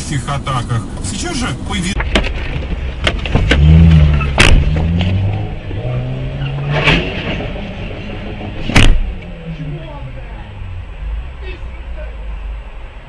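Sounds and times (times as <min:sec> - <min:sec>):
car engine running: 0:00.0 - 0:13.0
sharp knocks: 0:02.0 - 0:05.2, 0:06.6 - 0:09.2.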